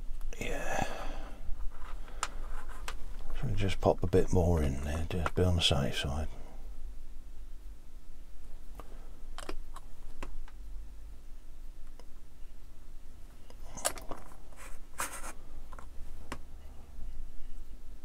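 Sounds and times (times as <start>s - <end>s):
steady low hum: 0.0s - 18.0s
plastic parts clicking and scraping: 9.4s - 9.9s, 13.8s - 15.9s.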